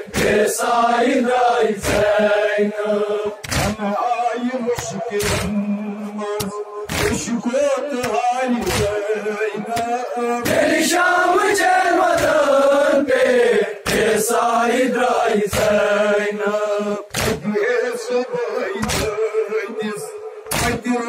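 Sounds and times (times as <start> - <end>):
men chanting in unison: 0.0 - 21.0
hands striking chests: 3.4 - 3.8, 5.2 - 5.6, 18.8 - 19.2.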